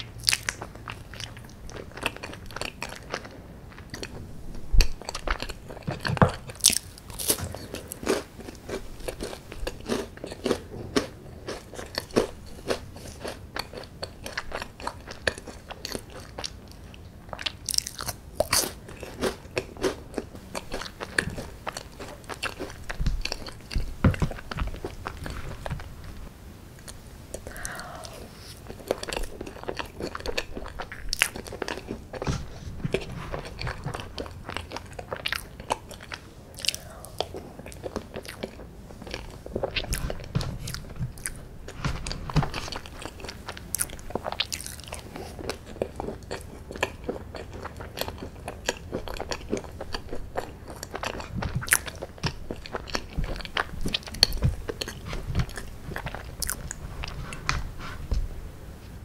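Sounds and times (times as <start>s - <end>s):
chewing and lip smacks: 0.0s - 4.2s, 26.8s - 57.6s
person eating ice cream: 0.0s - 58.2s.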